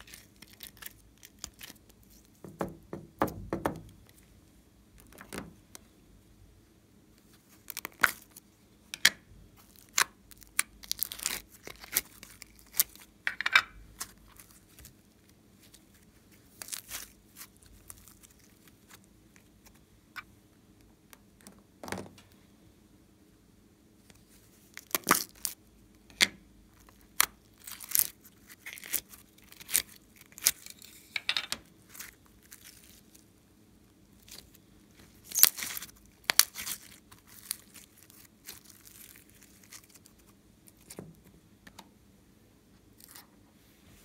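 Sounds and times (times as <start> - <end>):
slime crackling and tearing snaps: 0.0 - 2.2, 9.6 - 13.0, 16.5 - 19.5, 24.7 - 25.6, 26.9 - 30.8, 35.2 - 41.0.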